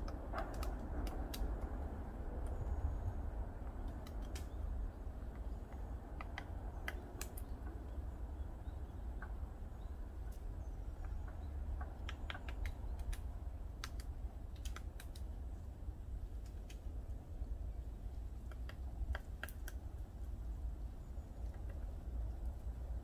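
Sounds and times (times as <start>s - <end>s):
woodpecker tapping on tree: 0.0s - 1.8s, 3.6s - 8.0s, 9.1s - 9.5s, 10.1s - 15.5s, 18.1s - 20.0s, 21.4s - 22.5s.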